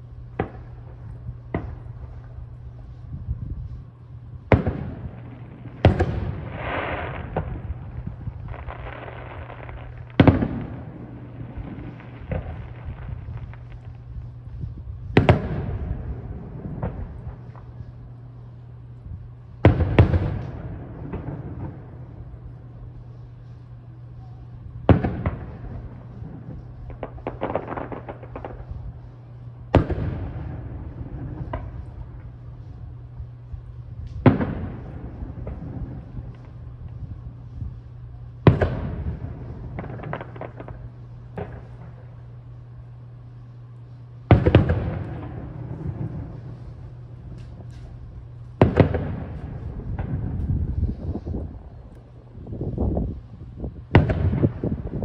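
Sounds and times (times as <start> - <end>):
firework crackling: 0.0 - 55.0
steady low hum: 0.0 - 55.0
firework shells booming: 0.2 - 2.4, 4.4 - 18.5, 19.6 - 22.5, 24.8 - 29.0, 29.7 - 32.0, 33.2 - 37.1, 38.4 - 42.2, 44.3 - 52.6, 53.8 - 55.0.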